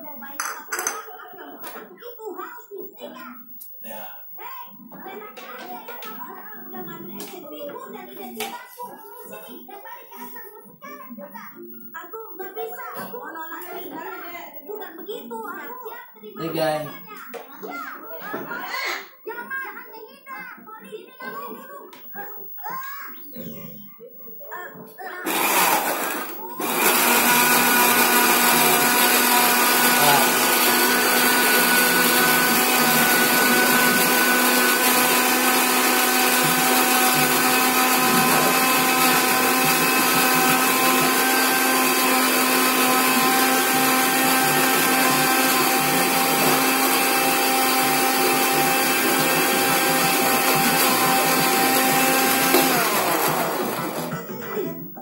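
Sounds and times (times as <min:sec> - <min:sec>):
blender running: 0:16.4 - 0:16.8, 0:25.2 - 0:54.4.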